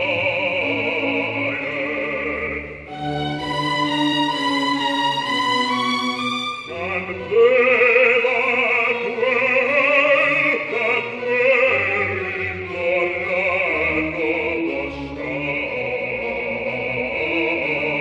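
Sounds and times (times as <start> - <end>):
operatic bass singing: 0.0 - 18.0.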